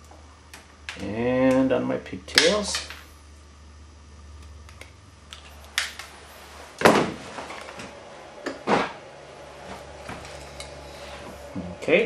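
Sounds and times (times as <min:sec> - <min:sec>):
wire strippers snapping: 0:00.0 - 0:03.1, 0:04.4 - 0:06.1.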